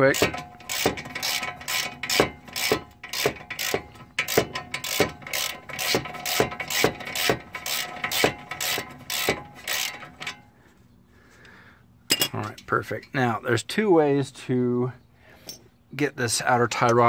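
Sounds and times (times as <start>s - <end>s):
ratchet wrench clicking: 0.0s - 10.4s.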